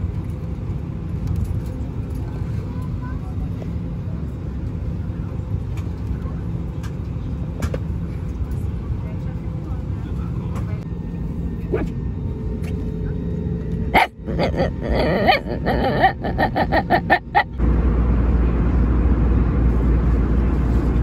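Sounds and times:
airliner cabin drone: 0:00.0 - 0:21.0
small dog whining: 0:14.0 - 0:17.6.

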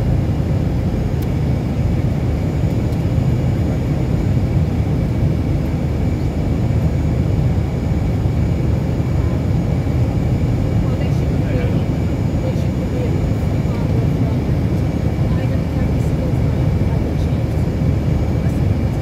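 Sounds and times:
jet engine roar in cabin: 0:00.0 - 0:19.0.

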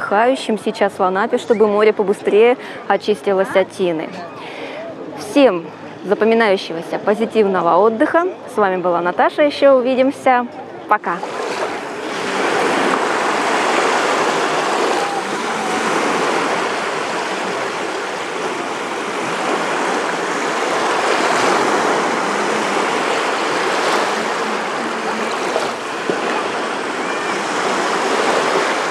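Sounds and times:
small waves breaking on shore: 0:11.1 - 0:28.9.

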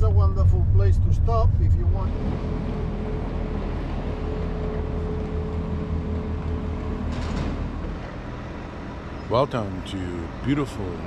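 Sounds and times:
motor vehicle rumbling: 0:00.0 - 0:11.0.

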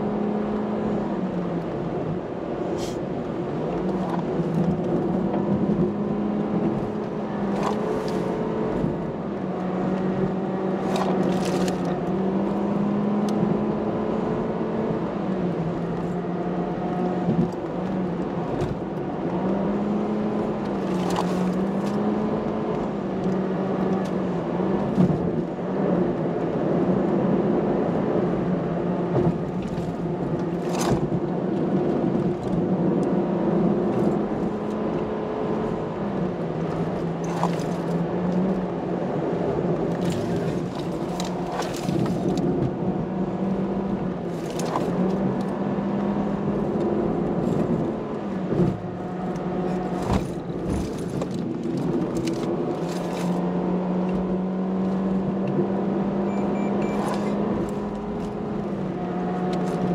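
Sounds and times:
car engine from inside cabin: 0:00.0 - 0:59.9.

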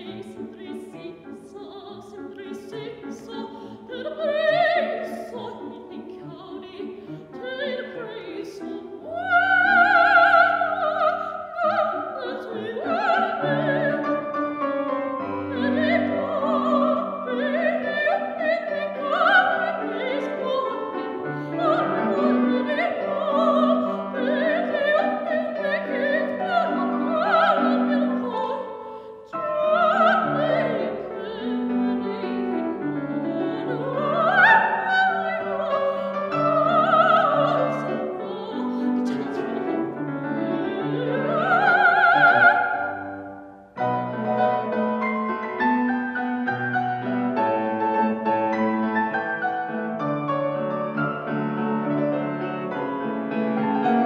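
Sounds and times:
woman singing opera: 0:00.0 - 0:46.6
grand piano: 0:00.0 - 0:54.0.

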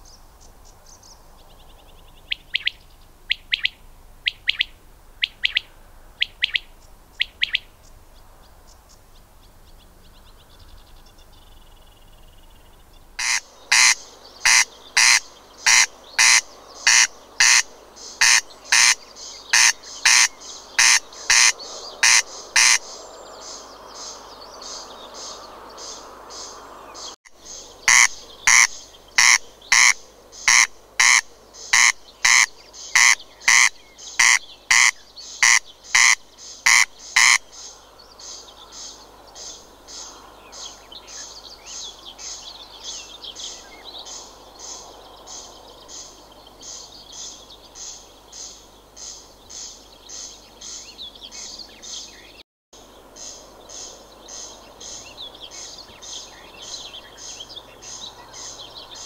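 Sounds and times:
corncrake rasping call: 0:13.2 - 0:23.0, 0:27.5 - 0:37.7.

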